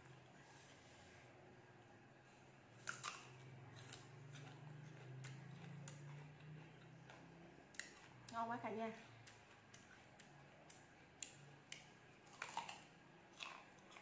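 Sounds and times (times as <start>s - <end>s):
crunchy chewing: 2.7s - 8.4s, 9.0s - 14.0s
fruit bitten with crunch: 2.7s - 14.0s.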